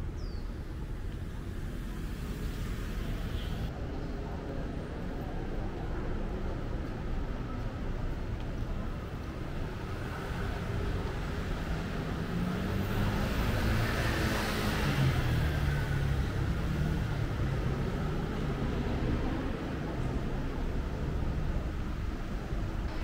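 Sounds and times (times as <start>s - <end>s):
vehicle passing by: 10.2s - 19.2s.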